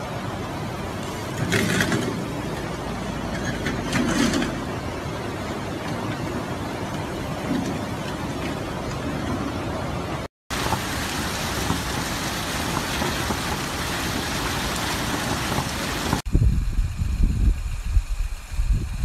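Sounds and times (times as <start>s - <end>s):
floodwater rushing and splashing: 0.0s - 16.3s
low gusting rumble: 11.0s - 19.0s.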